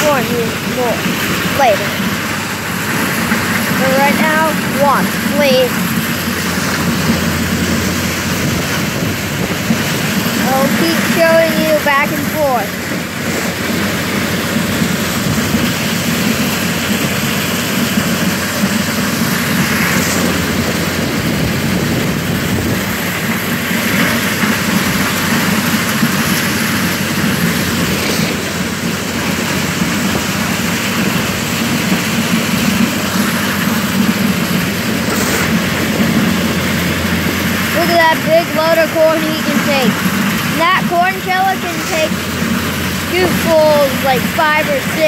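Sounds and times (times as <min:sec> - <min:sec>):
corn sheller mechanical din: 0:00.0 - 0:45.0
tractor engine running: 0:00.0 - 0:45.0
shovel scraping metal: 0:35.0 - 0:35.8.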